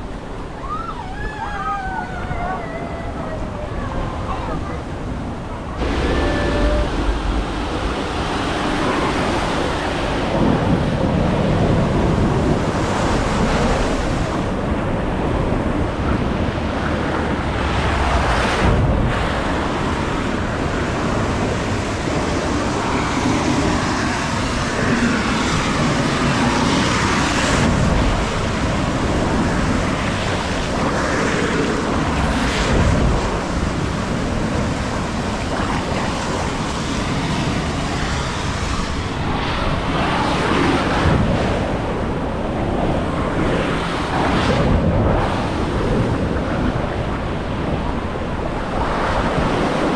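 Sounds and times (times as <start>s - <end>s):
wind buffeting microphone: 0.0s - 49.9s
water rushing down slide: 5.8s - 14.6s.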